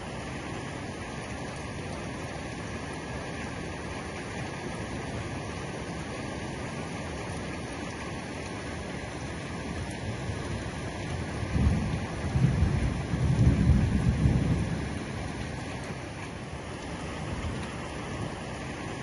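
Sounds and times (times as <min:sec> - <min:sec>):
heavy rain falling: 0:00.0 - 0:19.0
thunder rumbling: 0:11.2 - 0:15.6.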